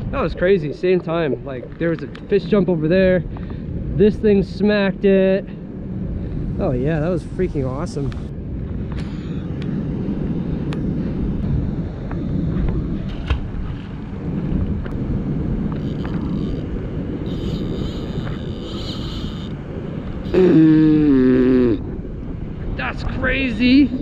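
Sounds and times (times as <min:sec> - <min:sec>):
wind buffeting microphone: 0:00.0 - 0:24.0
drawn-out vocal exclamation: 0:20.2 - 0:21.9.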